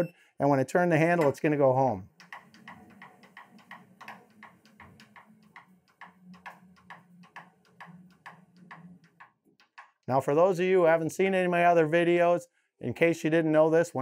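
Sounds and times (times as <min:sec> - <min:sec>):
faint regular ticking: 0:02.1 - 0:10.5.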